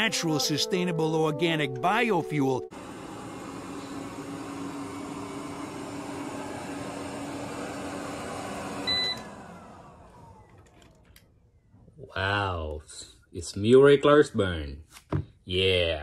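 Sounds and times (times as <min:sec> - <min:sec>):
robot vacuum motor hum: 0:02.7 - 0:10.8.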